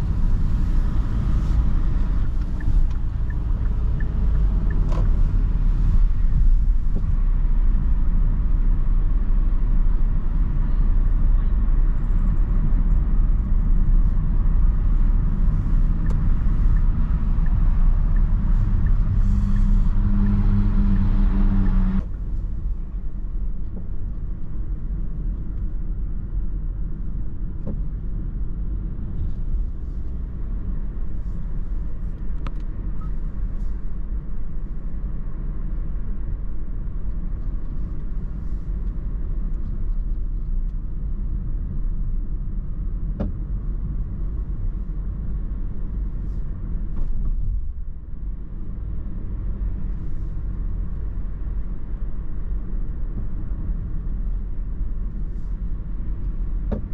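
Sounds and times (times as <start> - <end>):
car engine and tyre noise: 0.0 - 56.9.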